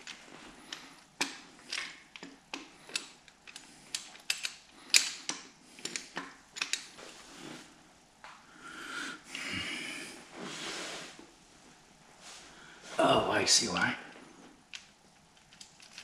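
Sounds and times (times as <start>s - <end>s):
metallic clicks and taps: 0.0s - 6.8s
long breathy huff: 8.5s - 11.1s.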